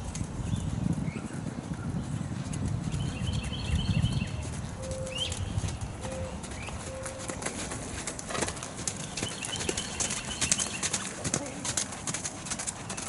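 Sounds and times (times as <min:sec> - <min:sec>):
horse hooves trotting on sand: 0:00.0 - 0:13.0
small birds chirping: 0:00.4 - 0:07.3, 0:08.8 - 0:11.7, 0:12.6 - 0:13.0.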